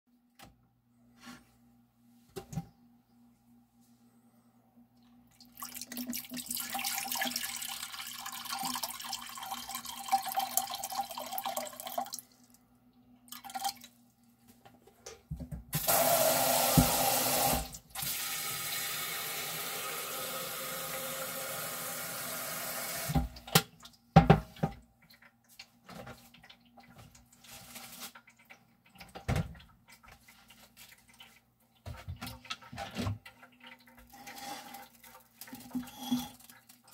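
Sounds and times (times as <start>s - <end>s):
water running from a tap: 5.4s - 12.2s, 15.8s - 23.3s.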